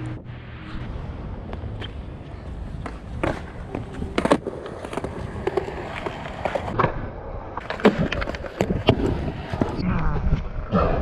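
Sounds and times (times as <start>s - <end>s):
skateboard wheels rolling on concrete: 0.0s - 10.5s
skateboard clacks and knocks: 2.8s - 6.9s.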